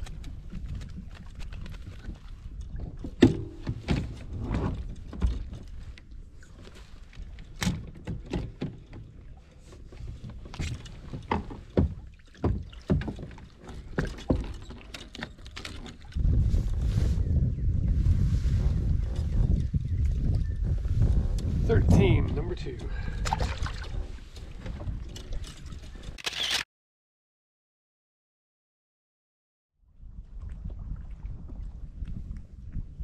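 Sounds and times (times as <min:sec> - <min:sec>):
knocks and rattles on a kayak: 0:00.0 - 0:26.2.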